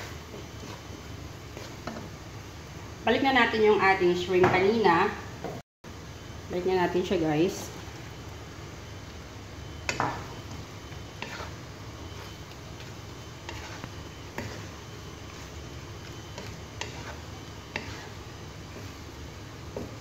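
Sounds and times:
spatula knocking and scraping pan: 0.0s - 2.1s, 9.8s - 19.0s, 19.6s - 20.0s
spatula stirring sauce in wok: 0.0s - 2.2s, 9.6s - 20.0s.

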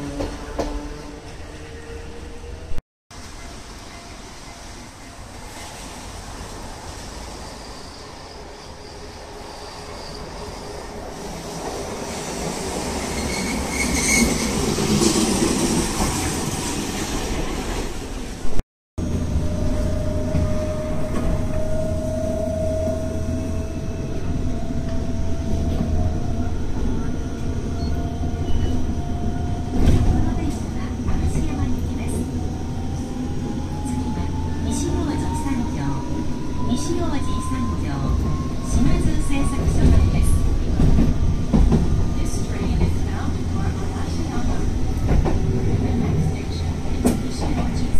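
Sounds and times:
tram approaching: 0.0s - 47.9s
wheel or brake squeal: 7.4s - 10.8s, 12.8s - 15.4s
tram running rumble: 10.2s - 47.9s.

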